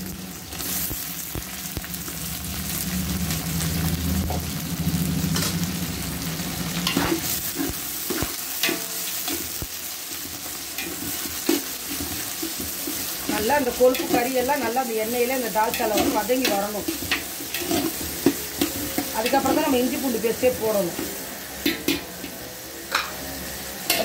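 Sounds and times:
meat sizzling in hot oil: 0.0s - 24.0s
ladle knocking and scraping pot: 15.7s - 19.7s.

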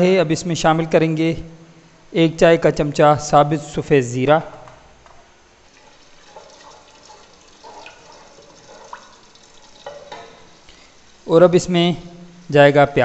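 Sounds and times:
seeds sizzling in oil: 5.7s - 11.3s.

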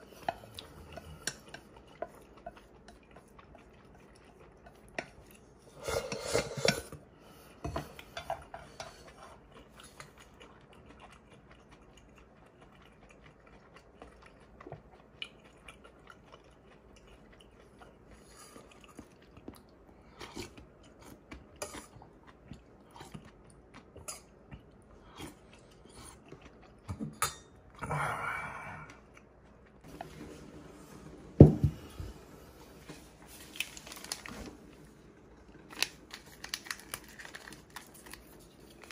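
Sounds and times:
chewing: 0.0s - 27.8s, 28.8s - 30.0s.

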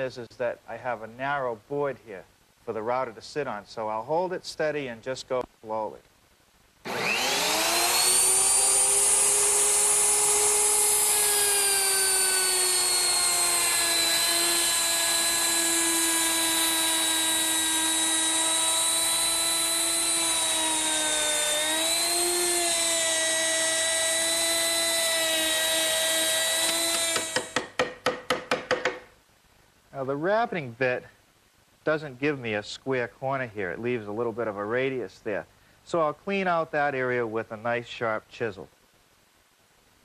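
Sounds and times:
router high whine: 6.9s - 27.6s.

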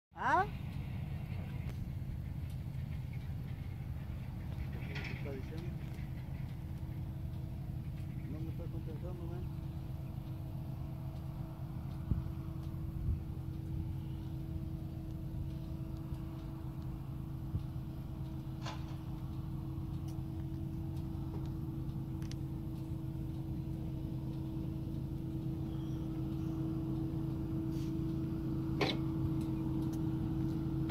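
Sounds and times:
engine idling hum: 0.2s - 30.9s
faint clicks: 17.6s - 27.2s.

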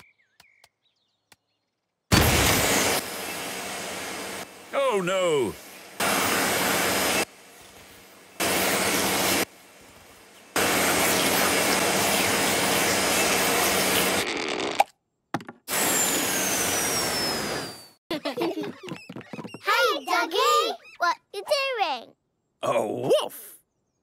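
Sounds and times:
cartoon vacuum cleaner running: 2.1s - 14.8s, 15.7s - 20.7s
falling whistle: 16.0s - 18.0s.

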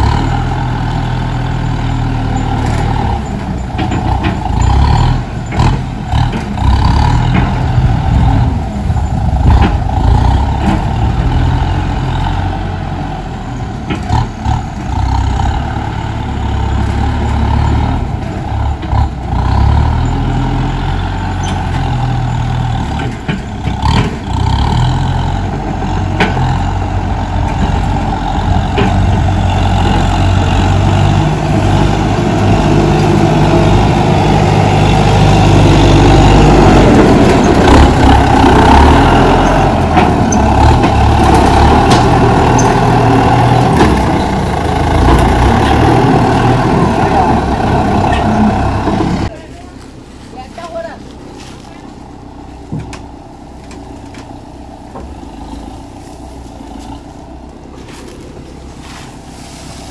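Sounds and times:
dozer blade pushing soil: 0.0s - 59.9s
tractor diesel engine under load: 0.0s - 59.9s.

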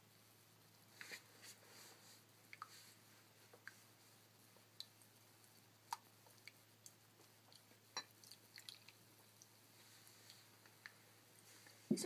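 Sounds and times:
faint ticks and water drips: 2.3s - 11.8s.

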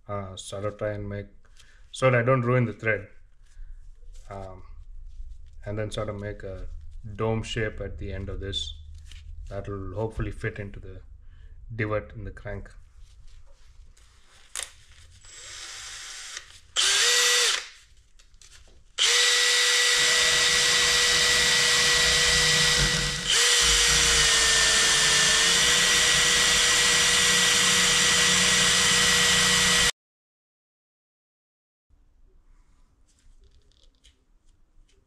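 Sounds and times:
drill motor whine: 15.3s - 17.6s, 19.0s - 29.9s.

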